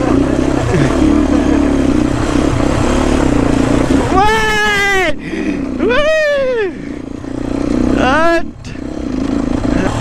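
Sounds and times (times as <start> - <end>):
steady rushing noise: 0.0 - 9.6
motorcycle engine revving: 0.0 - 10.0.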